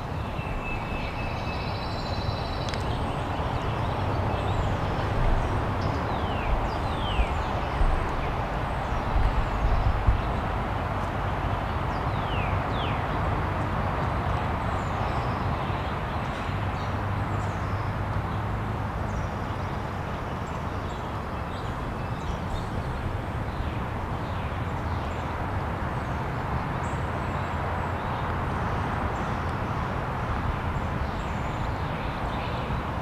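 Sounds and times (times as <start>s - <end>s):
small birds chirping: 0.0s - 10.5s.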